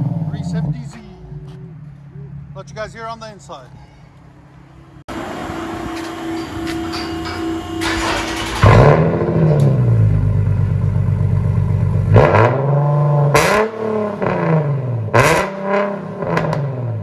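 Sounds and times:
car engine revving: 0:00.0 - 0:03.0, 0:04.5 - 0:17.0
exhaust cracks: 0:05.2 - 0:17.0.

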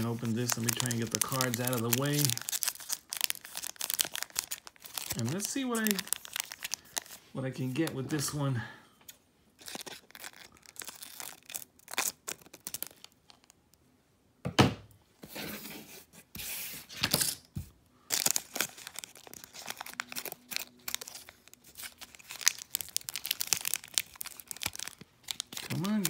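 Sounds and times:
foil wrapper crinkling: 0:00.0 - 0:08.4, 0:09.6 - 0:13.6, 0:18.1 - 0:26.0.

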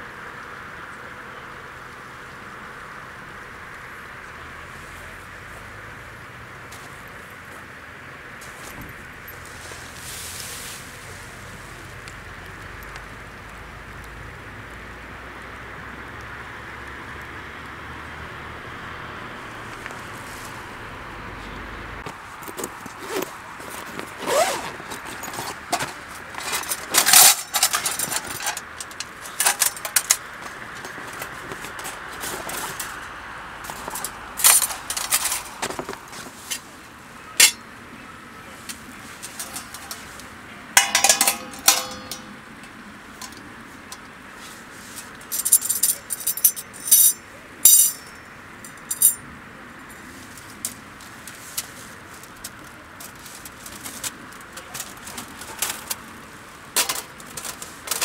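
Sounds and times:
metal gear clinking and clattering: 0:23.8 - 0:36.6, 0:37.4 - 0:37.6, 0:39.2 - 0:40.2, 0:40.8 - 0:42.4, 0:45.0 - 0:49.2, 0:56.8 - 0:58.0
ringing metallic clank: 0:37.4 - 0:37.7, 0:40.8 - 0:42.4, 0:45.5 - 0:48.2.

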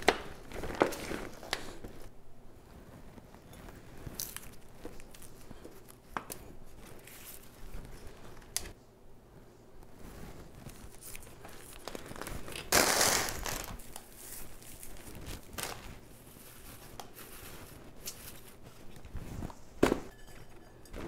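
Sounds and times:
loud crinkling tearing: 0:10.8 - 0:18.6.

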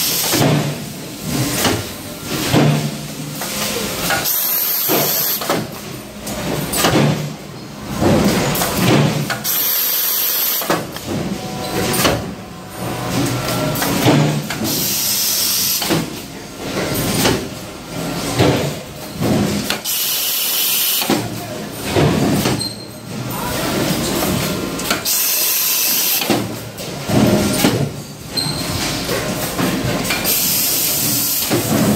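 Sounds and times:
machine hissing: 0:00.0 - 0:05.5, 0:09.3 - 0:10.8, 0:13.7 - 0:16.1, 0:30.2 - 0:31.9.

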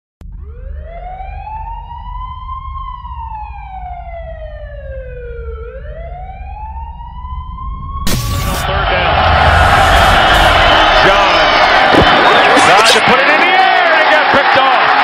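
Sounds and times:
siren-like wail: 0:00.2 - 0:13.0
low rumble: 0:08.1 - 0:12.6.

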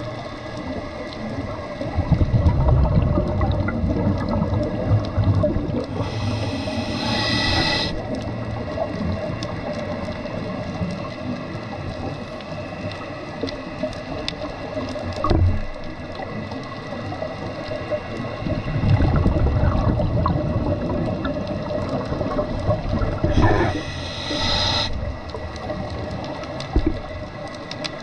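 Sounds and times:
exhaled bubbles rumbling: 0:00.0 - 0:28.0
steady hum: 0:05.8 - 0:08.4, 0:23.2 - 0:25.7
regulator inhalation hiss: 0:05.9 - 0:08.3, 0:23.2 - 0:25.4.

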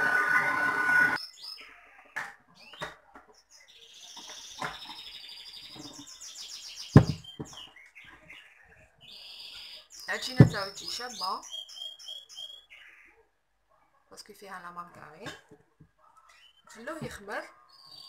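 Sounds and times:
stand mixer motor hum: 0:00.0 - 0:01.2
small birds chirping: 0:01.2 - 0:13.7, 0:15.9 - 0:18.0
loud thump: 0:07.0 - 0:07.5, 0:10.4 - 0:10.7.

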